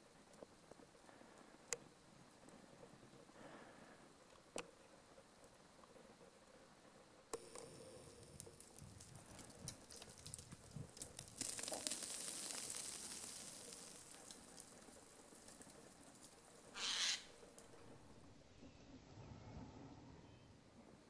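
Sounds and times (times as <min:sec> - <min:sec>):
hiss: 0:11.4 - 0:17.4.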